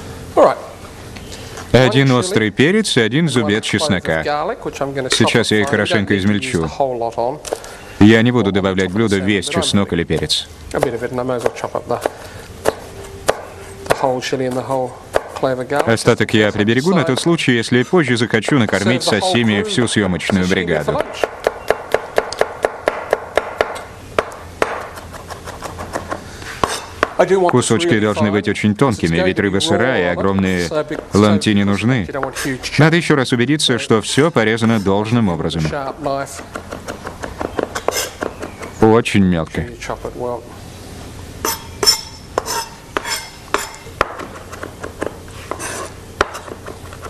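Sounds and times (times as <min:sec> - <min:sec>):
knife chopping on cutting board: 0:10.1 - 0:16.0, 0:20.2 - 0:27.2, 0:36.4 - 0:38.8, 0:41.5 - 0:46.8.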